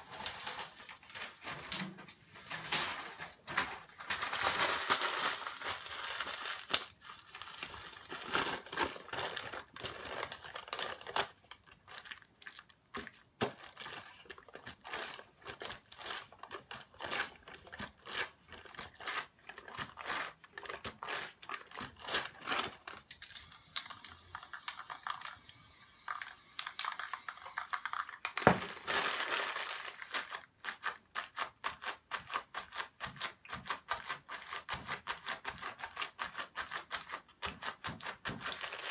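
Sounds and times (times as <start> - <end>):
paper crinkling and rustling: 0.0 - 38.9
spray-paint can hissing: 23.3 - 28.2.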